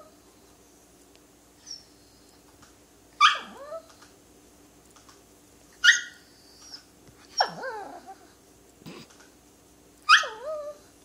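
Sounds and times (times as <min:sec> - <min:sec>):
small dog yelping barks: 0:03.2 - 0:03.9, 0:05.8 - 0:06.8, 0:07.4 - 0:08.0, 0:10.0 - 0:10.8.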